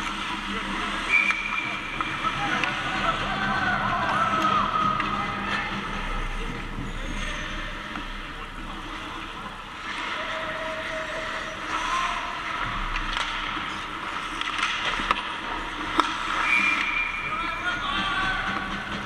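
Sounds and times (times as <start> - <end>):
puck clacks: 1.1 - 2.9, 12.4 - 17.1.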